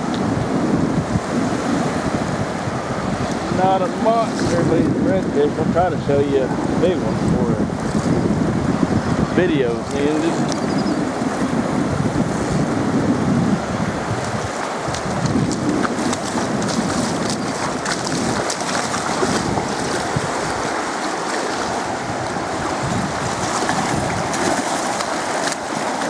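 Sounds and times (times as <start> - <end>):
surf washing on beach: 0.0 - 26.0
wind buffeting microphone: 0.0 - 26.0
fish splashing in water: 14.6 - 26.0.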